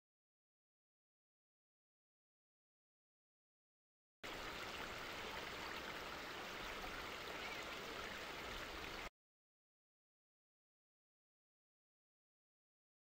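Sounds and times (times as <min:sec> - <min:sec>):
stream running over stones: 0:04.2 - 0:09.1.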